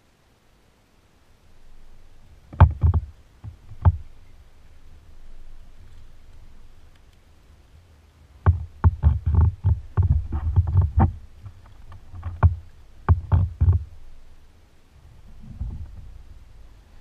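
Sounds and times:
knocks and rattles on kayak hull: 0:02.5 - 0:04.1, 0:08.4 - 0:14.1, 0:15.2 - 0:16.4.

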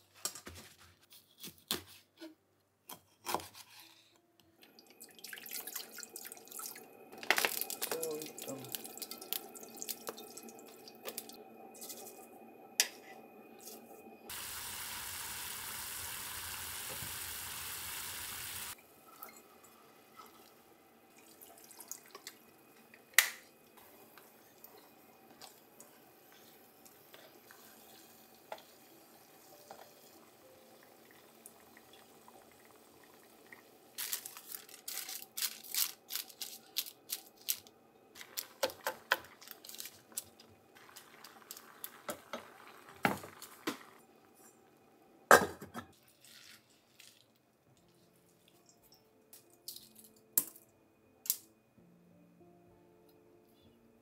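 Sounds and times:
liquid pouring into saucepan: 0:04.8 - 0:11.4, 0:14.3 - 0:22.5, 0:40.7 - 0:44.1
kitchen paper crinkling: 0:34.0 - 0:42.0, 0:46.0 - 0:47.4.

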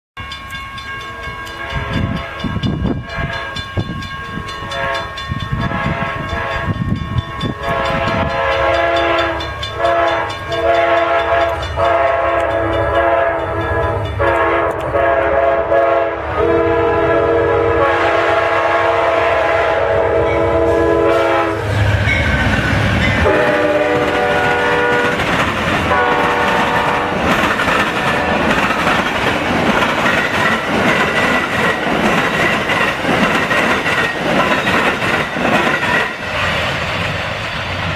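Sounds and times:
train rumble: 0:00.2 - 0:37.9
train wheel clatter: 0:00.4 - 0:15.3, 0:21.7 - 0:37.9
train air horn blasts: 0:01.2 - 0:03.7, 0:04.4 - 0:06.8, 0:07.4 - 0:22.2, 0:23.2 - 0:25.3, 0:25.9 - 0:27.3, 0:27.9 - 0:28.6.

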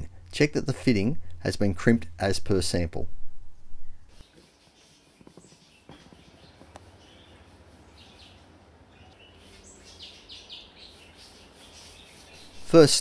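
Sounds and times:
low steady hum: 0:00.0 - 0:04.2
high bird chirps: 0:04.2 - 0:12.7.

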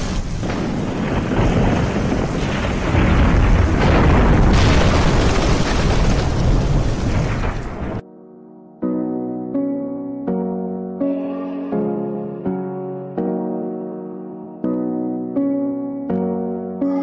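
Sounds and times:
building collapsing roar: 0:00.0 - 0:08.0
debris crashing: 0:00.0 - 0:08.0.

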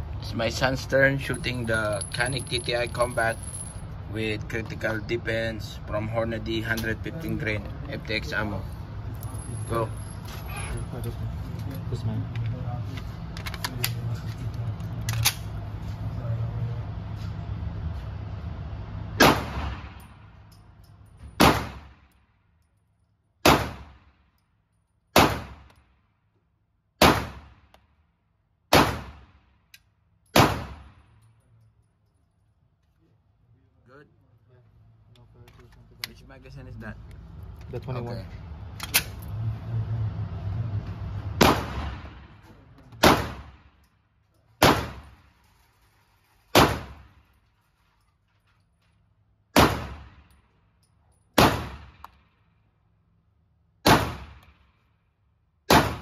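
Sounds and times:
pistol shots in concrete range: 0:19.1 - 0:20.4, 0:21.3 - 0:22.3, 0:23.4 - 0:26.2, 0:26.9 - 0:31.3, 0:41.4 - 0:43.9, 0:44.6 - 0:45.3, 0:46.5 - 0:47.2, 0:49.5 - 0:50.6, 0:51.3 - 0:52.6, 0:53.8 - 0:56.0.

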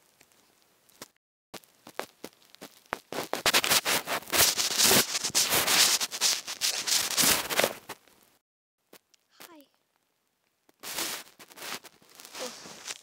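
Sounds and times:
microphone rubbing against bedding: 0:03.0 - 0:08.0, 0:10.8 - 0:13.0.

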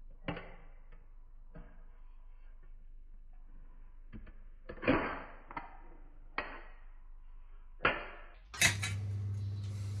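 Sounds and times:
low hum with hiss: 0:08.5 - 0:10.0.

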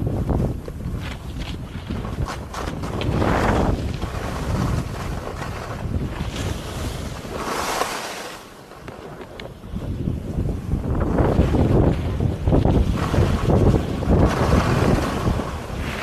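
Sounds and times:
wind buffeting microphone: 0:00.0 - 0:16.0
skis sliding over snow: 0:00.3 - 0:09.4, 0:12.6 - 0:16.0.

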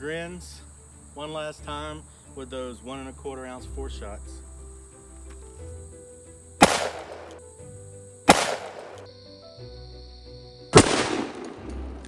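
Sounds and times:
background music: 0:00.0 - 0:12.0
shotgun blasts: 0:06.6 - 0:07.4, 0:08.3 - 0:09.0, 0:10.7 - 0:11.6.

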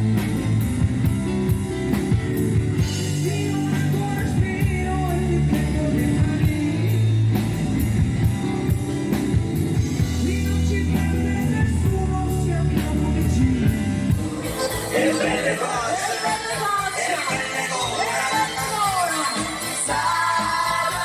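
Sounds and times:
drum kit with cymbal beat: 0:00.0 - 0:21.0
electric bass: 0:00.0 - 0:21.0
electric guitar: 0:00.0 - 0:21.0
keyboards: 0:00.0 - 0:21.0
lead vocal singing: 0:02.8 - 0:07.6, 0:10.0 - 0:21.0.

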